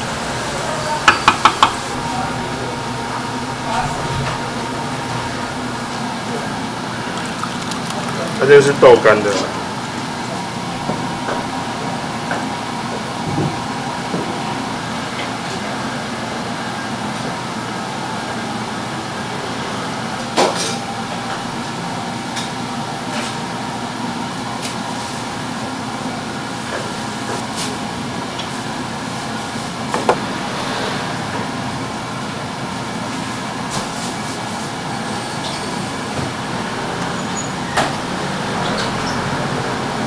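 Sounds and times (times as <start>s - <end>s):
machinery noise: 0.0s - 12.5s, 28.8s - 40.0s
wooden tools knocking on steel: 1.0s - 1.8s.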